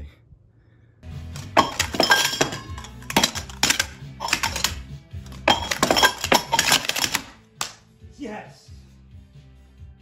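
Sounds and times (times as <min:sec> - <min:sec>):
metal cups clinking and clattering: 0:01.4 - 0:07.4.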